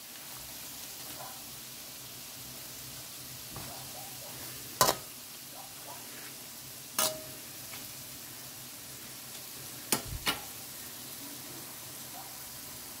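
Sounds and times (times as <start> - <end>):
deep-frying sizzle in oil: 0.0 - 13.0
metal spatula knocking wok: 4.8 - 5.0, 7.0 - 7.4.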